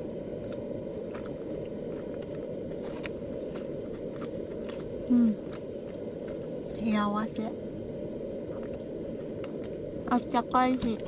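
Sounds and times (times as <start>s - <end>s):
person chewing: 0.0s - 6.8s, 8.5s - 10.1s
steady low rumble: 0.0s - 11.0s.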